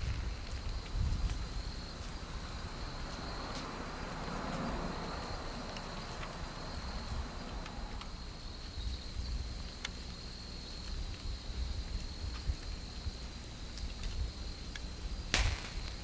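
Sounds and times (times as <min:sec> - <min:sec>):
low uneven rumble: 0:00.0 - 0:16.0
faint sharp ticks: 0:07.5 - 0:08.8.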